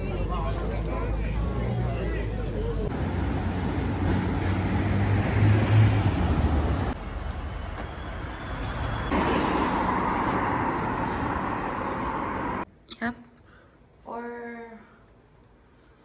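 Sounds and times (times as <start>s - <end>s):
traffic noise: 0.0s - 12.7s
vehicle engine humming: 0.0s - 12.7s
street ambience: 0.0s - 14.0s.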